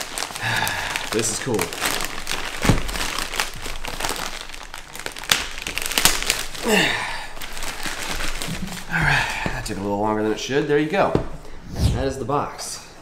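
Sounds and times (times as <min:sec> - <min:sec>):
plastic mailer crinkling: 0:00.0 - 0:09.8.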